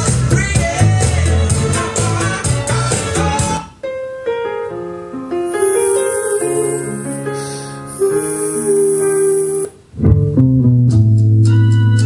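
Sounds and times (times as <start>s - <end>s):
slow held music chords: 5.4s - 11.1s.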